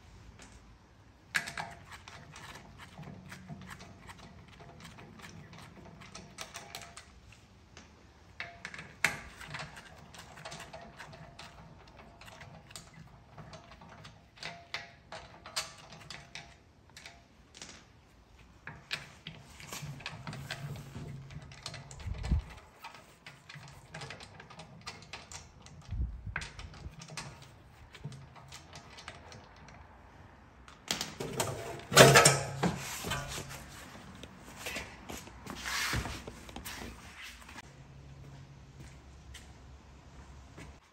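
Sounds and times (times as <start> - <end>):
hand tools clicking and knocking: 1.3 - 30.0, 30.6 - 35.4
clattering: 31.1 - 34.0.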